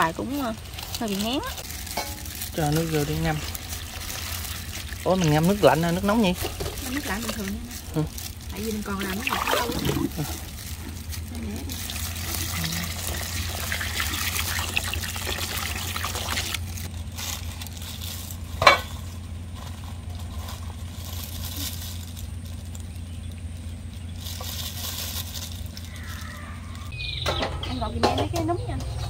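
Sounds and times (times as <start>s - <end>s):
steady low hum: 0.0s - 29.0s
water pouring into container: 1.7s - 16.9s.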